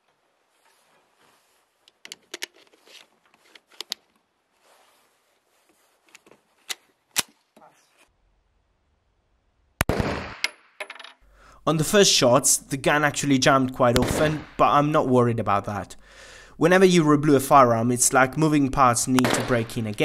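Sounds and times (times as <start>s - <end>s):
pistol shot echoing: 9.8s - 10.4s, 14.0s - 14.7s, 19.2s - 19.8s.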